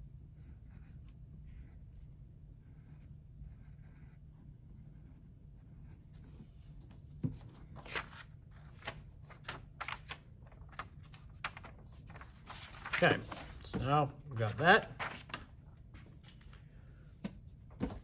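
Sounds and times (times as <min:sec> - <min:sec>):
pencil scratching on paper: 0:00.0 - 0:07.1
paper rustling: 0:06.1 - 0:16.2.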